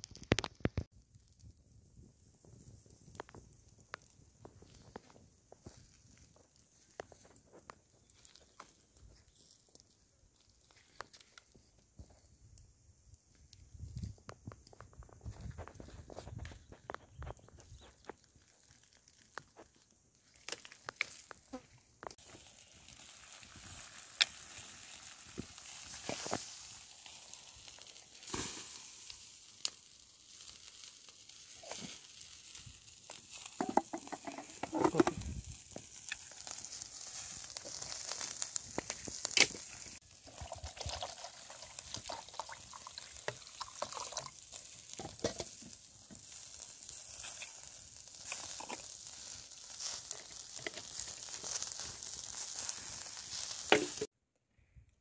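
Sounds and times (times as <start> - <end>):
crackles and sharp pops: 0.0 - 54.1
meat sizzling over embers: 0.0 - 54.1.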